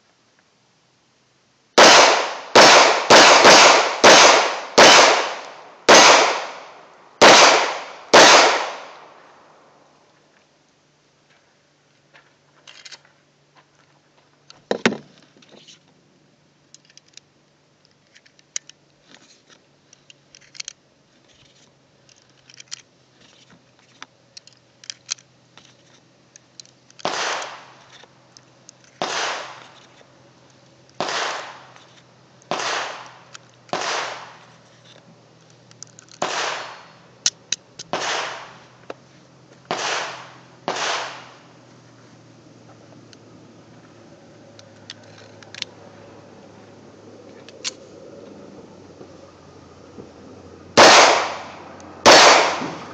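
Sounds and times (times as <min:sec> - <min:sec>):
pistol handling clicks: 0:24.0 - 0:39.0, 0:44.5 - 0:45.7
cartridges clicking into magazine: 0:24.4 - 0:30.0, 0:30.9 - 0:38.6.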